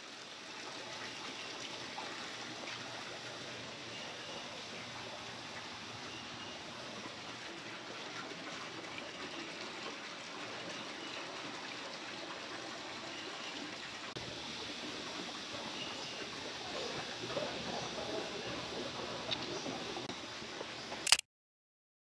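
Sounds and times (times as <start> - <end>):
water trickling: 0.0 - 21.0
small click: 21.0 - 21.2.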